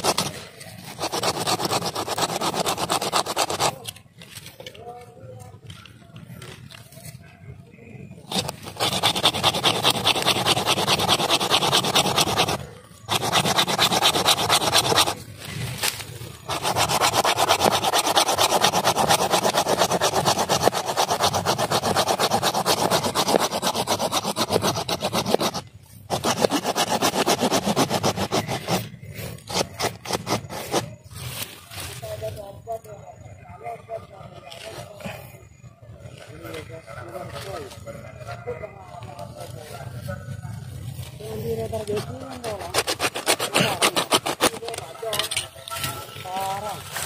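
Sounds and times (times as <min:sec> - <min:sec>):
hand saw cutting wood: 0:00.0 - 0:04.0, 0:08.3 - 0:31.0, 0:41.8 - 0:45.4.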